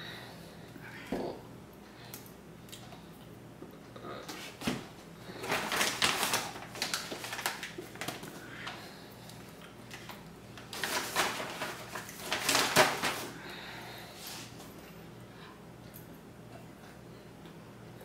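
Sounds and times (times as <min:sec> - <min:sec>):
plastic bag crinkling: 0:05.3 - 0:08.8, 0:09.9 - 0:13.4.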